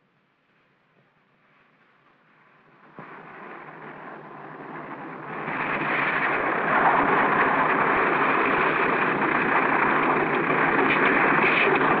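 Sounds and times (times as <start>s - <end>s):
propeller aircraft engines: 2.5s - 12.0s.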